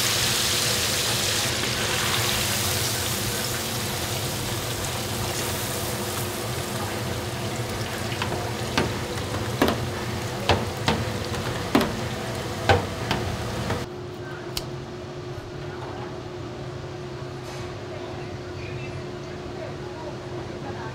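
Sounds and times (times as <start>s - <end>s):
hot oil sizzling: 0.0s - 13.9s
metal fryer basket clanks: 6.2s - 13.9s.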